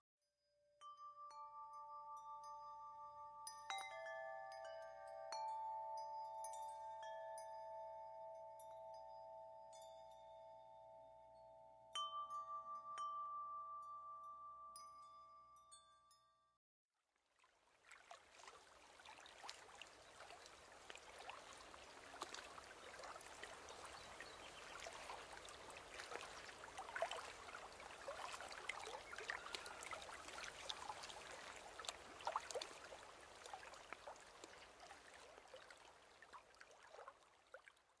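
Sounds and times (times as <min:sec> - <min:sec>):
stream babbling: 0:17.4 - 0:38.0.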